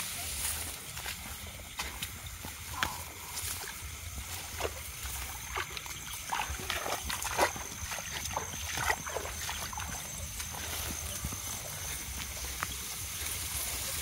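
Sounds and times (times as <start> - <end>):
swishing through tall grass: 0.0 - 14.0
footsteps splashing in water: 3.5 - 13.9.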